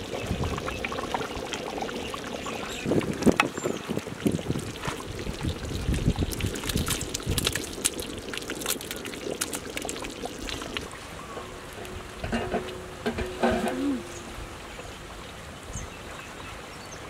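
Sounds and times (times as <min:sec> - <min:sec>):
curry slopping and splashing: 0:04.6 - 0:10.9
ladle clicking on pot: 0:11.8 - 0:14.0.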